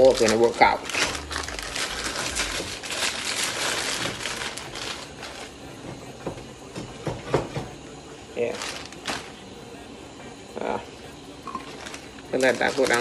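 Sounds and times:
plastic bag crinkling and rustling: 0.0 - 5.6, 8.4 - 9.4, 11.5 - 13.0.

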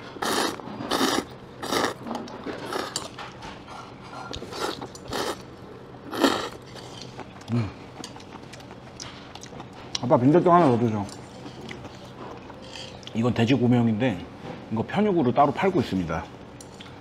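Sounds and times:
noodles slurping: 0.2 - 3.1, 4.3 - 5.4
chewing: 0.2 - 5.5, 6.1 - 10.1, 11.1 - 13.2.

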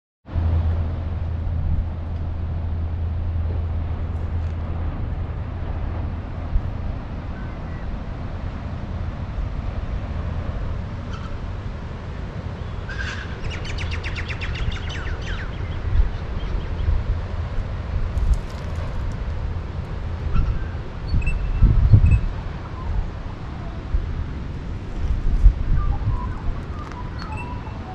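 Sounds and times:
low outdoor rumble with hiss: 0.3 - 27.9
bird trilled call: 20.4 - 23.0, 25.9 - 27.9.

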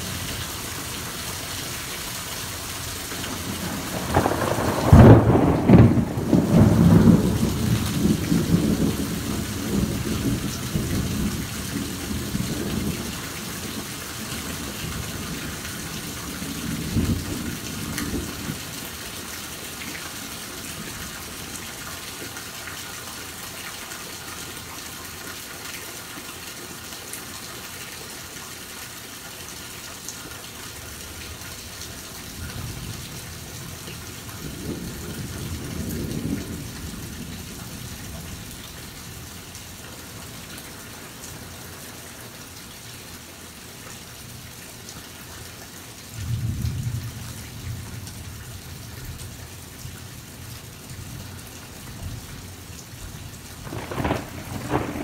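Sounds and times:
heavy rain: 0.0 - 55.0
thunder rumbling: 3.3 - 13.1, 34.4 - 38.4, 53.6 - 55.0.

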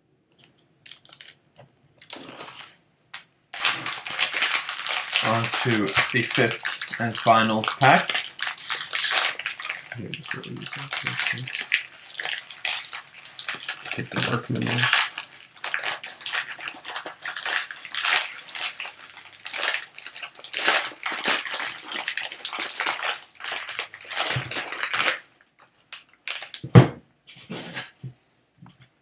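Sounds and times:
foil wrapper crinkling and tearing: 0.8 - 1.4, 2.0 - 2.8, 3.5 - 26.6
thump: 26.6 - 27.0.

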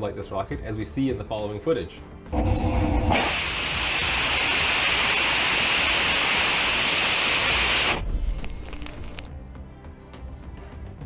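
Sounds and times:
rocket engine roaring: 2.4 - 5.6.

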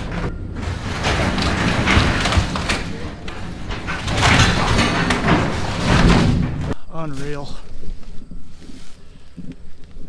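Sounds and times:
metal scraping and creaking: 0.0 - 7.4.

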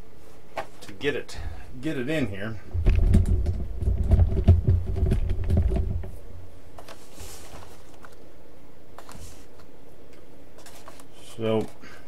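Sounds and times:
soft rustle: 6.8 - 8.2, 9.0 - 9.7.

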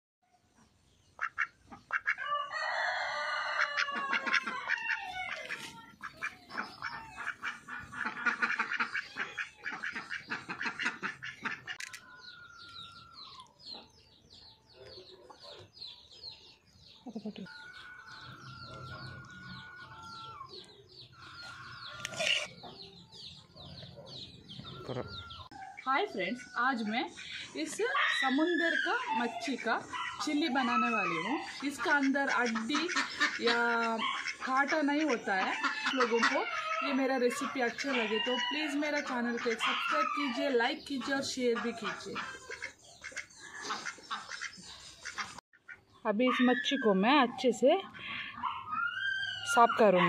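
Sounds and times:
chickens clucking and crowing: 1.6 - 45.9
duck calling: 3.8 - 11.8, 31.8 - 36.9.

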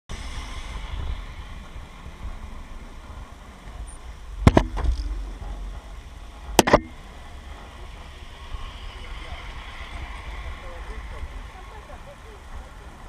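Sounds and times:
wind rumble on microphone: 0.1 - 13.0
ski gear clacking: 4.4 - 7.0.

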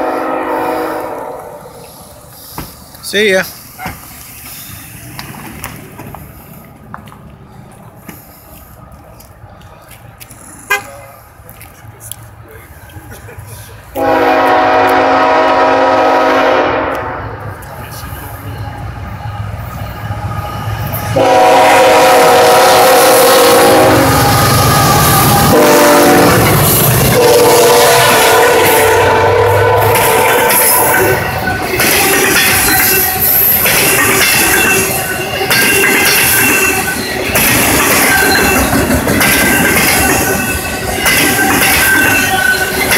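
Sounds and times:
locomotive air horn blasts: 0.0 - 1.8, 13.9 - 17.3, 21.1 - 31.3
distant freight train rumble: 0.0 - 42.9
locomotive engines: 0.0 - 42.9.

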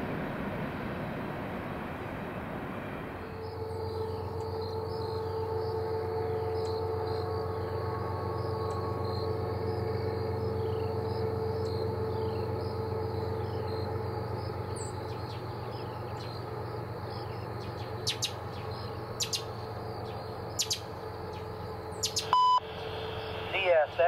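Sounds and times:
steady low hum: 0.0 - 24.0
insects chirping: 3.2 - 24.0
brief beep: 22.3 - 22.6.

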